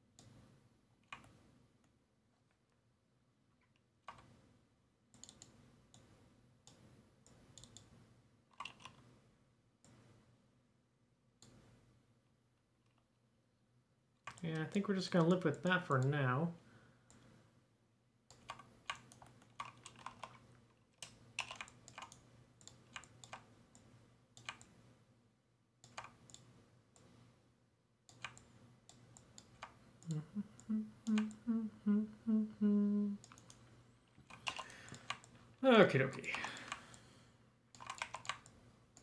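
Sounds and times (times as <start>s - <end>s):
mouse and keyboard clicks: 5.1s - 6.1s, 6.7s - 9.1s, 18.3s - 24.8s, 25.8s - 27.1s, 28.1s - 29.8s, 33.2s - 35.4s, 37.7s - 39.0s
man humming: 30.0s - 33.3s.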